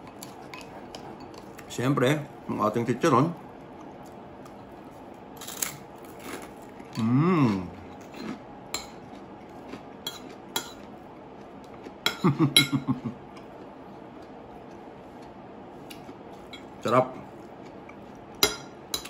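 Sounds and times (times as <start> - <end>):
person humming with approval: 7.0 - 7.7.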